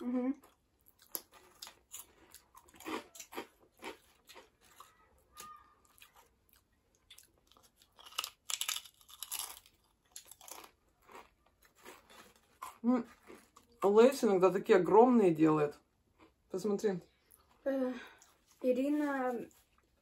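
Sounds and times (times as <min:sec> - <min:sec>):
crunching and chewing chips: 0:00.0 - 0:14.0.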